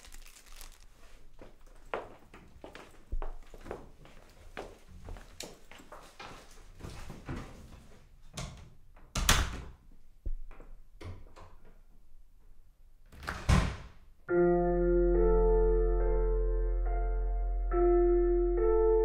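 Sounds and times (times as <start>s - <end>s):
footsteps and shuffling: 0.0s - 8.1s
piano music: 14.3s - 19.0s.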